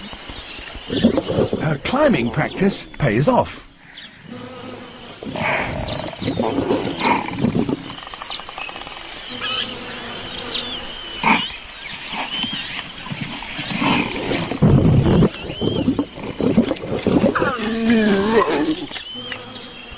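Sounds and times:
lion growling and snarling: 0:04.2 - 0:08.1, 0:09.3 - 0:12.6, 0:13.4 - 0:19.9.

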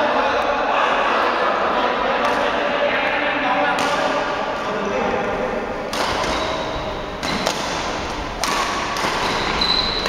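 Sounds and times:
rackets hitting shuttlecock: 0:03.7 - 0:04.3, 0:05.8 - 0:10.0.

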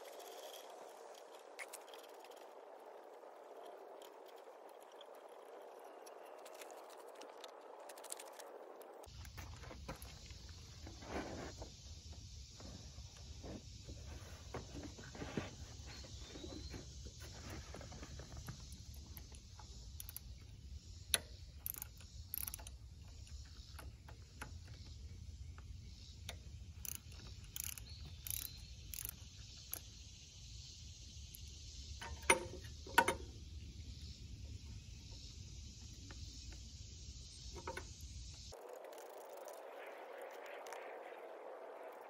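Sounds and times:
ratchet wrench clicking: 0:18.6 - 0:24.6, 0:26.2 - 0:30.0.

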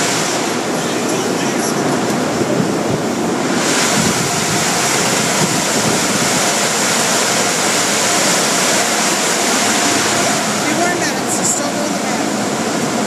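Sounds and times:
car wash machinery rushing: 0:00.0 - 0:13.0.

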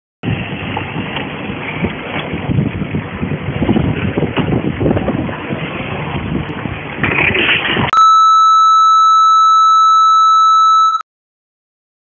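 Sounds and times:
wind buffeting microphone: 0:00.2 - 0:07.9
steady test-tone beep: 0:07.9 - 0:11.0.

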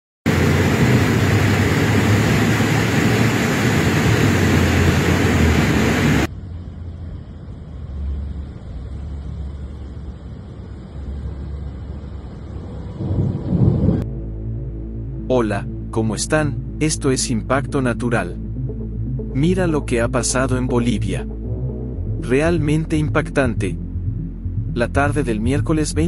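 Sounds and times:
flash flood torrent roaring: 0:00.3 - 0:06.3, 0:07.8 - 0:14.0.

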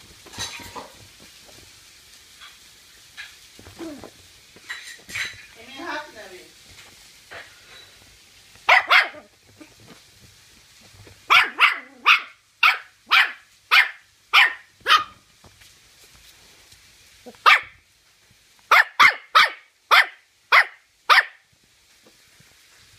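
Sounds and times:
small dog barking: 0:08.6 - 0:09.3, 0:11.2 - 0:15.2, 0:17.2 - 0:17.8, 0:18.7 - 0:21.5.

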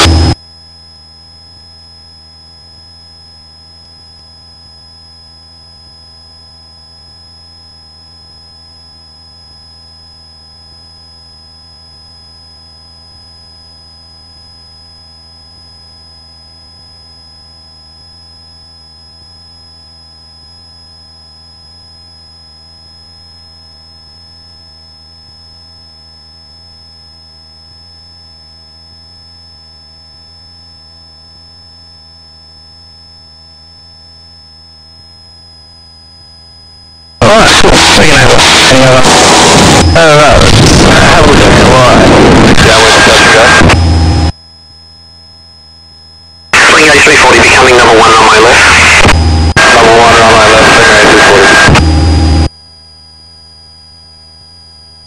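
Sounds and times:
electrical hum: 0:00.0 - 0:00.4, 0:37.2 - 0:44.3, 0:46.6 - 0:52.5
high-pitched whine: 0:00.0 - 0:00.5, 0:34.3 - 0:55.0.

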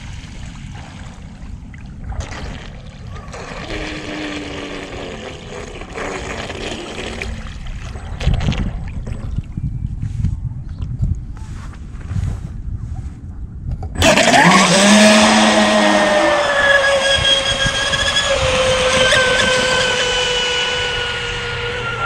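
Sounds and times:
water wash: 0:00.0 - 0:09.2, 0:14.0 - 0:22.0
electric boat motor whine: 0:03.6 - 0:07.3, 0:14.0 - 0:22.0
wind buffeting microphone: 0:07.2 - 0:22.0.

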